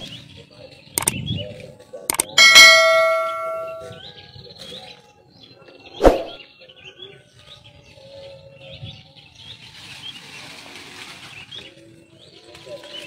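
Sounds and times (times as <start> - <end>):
birds chirping: 0.0 - 10.3.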